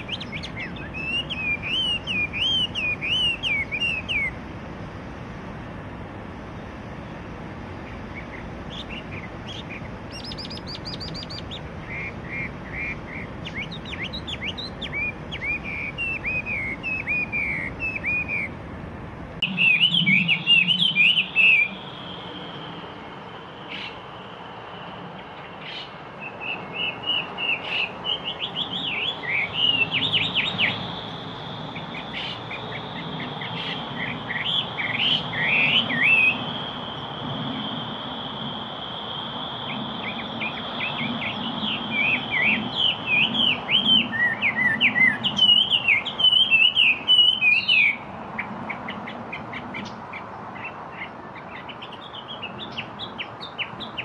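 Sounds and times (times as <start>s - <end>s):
bird singing whistled phrases: 0.0s - 4.4s, 8.2s - 18.5s, 19.4s - 21.9s, 31.7s - 36.5s, 39.6s - 48.0s.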